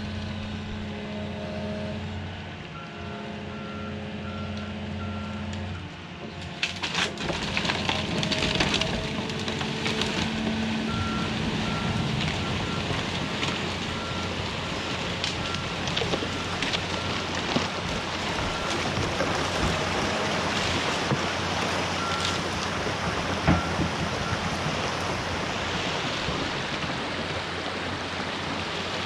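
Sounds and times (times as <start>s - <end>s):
excavator engine running: 0.0s - 29.0s
excavator alarm beeps: 2.8s - 5.9s, 10.8s - 12.9s, 14.0s - 17.3s, 18.4s - 18.9s, 22.0s - 22.4s, 23.5s - 24.5s
rushing water: 7.0s - 29.0s.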